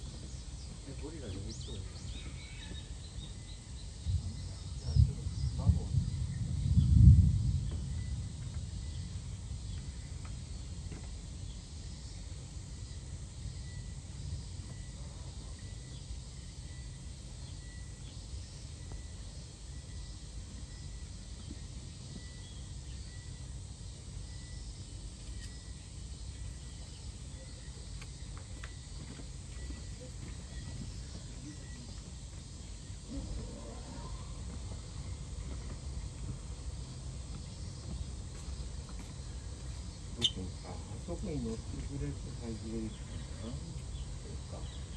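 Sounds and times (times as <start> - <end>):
steady low rumble: 3.0 - 14.6
wind buffeting microphone: 3.8 - 10.9
faint high chirps: 29.5 - 32.1, 40.2 - 41.0.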